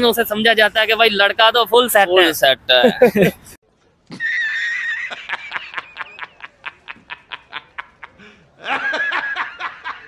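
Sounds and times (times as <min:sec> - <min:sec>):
man cackling laughter: 0:02.8 - 0:03.5, 0:04.1 - 0:10.0.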